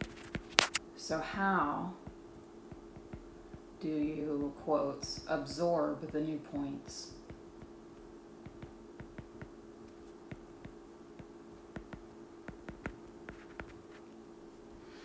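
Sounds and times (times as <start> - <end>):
faint steady hum: 0.0 - 15.0
stylus tapping on glass screen: 2.0 - 3.7, 6.9 - 13.8.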